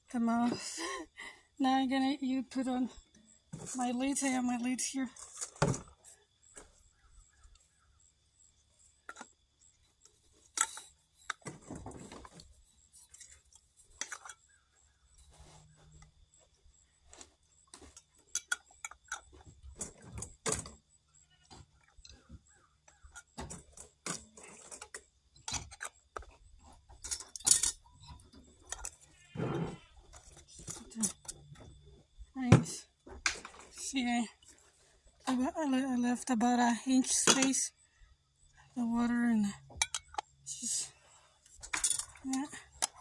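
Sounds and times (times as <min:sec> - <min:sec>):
metal lids clinking on glass jars: 0:13.0 - 0:14.6, 0:23.0 - 0:29.1, 0:37.0 - 0:37.7, 0:39.7 - 0:40.5, 0:41.6 - 0:43.0.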